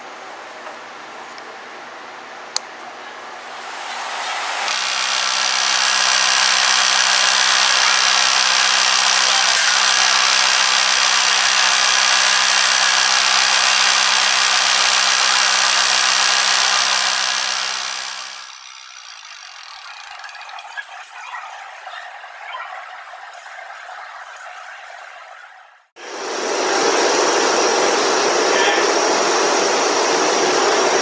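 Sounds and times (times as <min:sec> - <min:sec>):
lathe motor hum: 0:03.4 - 0:25.9
chisel hissing on lathe wood: 0:03.5 - 0:21.0.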